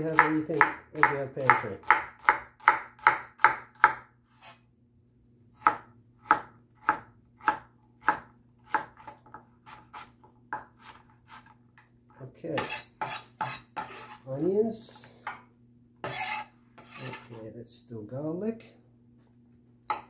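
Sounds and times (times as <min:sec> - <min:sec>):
knife chopping on plastic board: 0:00.1 - 0:04.1, 0:05.6 - 0:11.5
knife scraping board: 0:04.3 - 0:04.7, 0:08.7 - 0:11.6, 0:12.6 - 0:14.3, 0:16.0 - 0:17.4.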